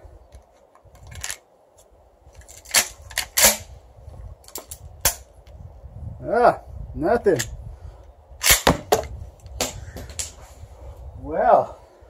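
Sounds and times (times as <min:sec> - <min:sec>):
shotgun being loaded and racked: 0:01.0 - 0:01.5, 0:02.4 - 0:03.7.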